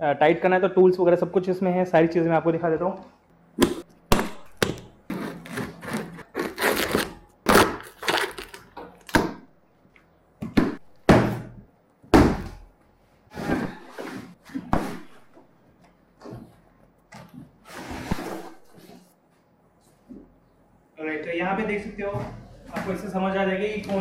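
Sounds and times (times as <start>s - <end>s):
scissors cutting plastic wrap: 4.6s - 9.2s
cardboard ripping and tearing: 5.1s - 8.7s.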